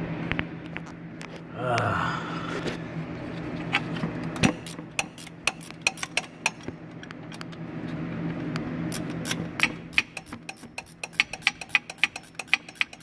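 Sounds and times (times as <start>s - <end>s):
steady low hum: 0.0s - 13.0s
wrench metallic clicks: 4.6s - 7.5s, 8.9s - 13.0s.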